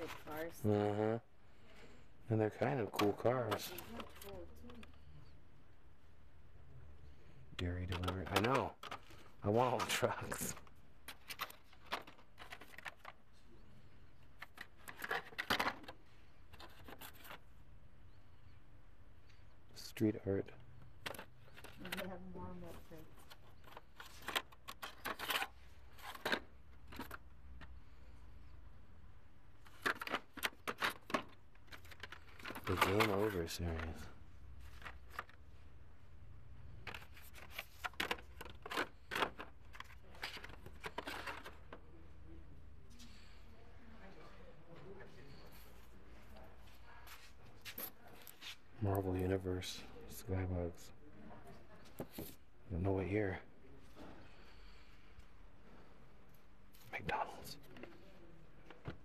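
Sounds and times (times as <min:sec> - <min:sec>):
blister packs clicking and crinkling: 0:29.6 - 0:35.4, 0:36.7 - 0:41.8.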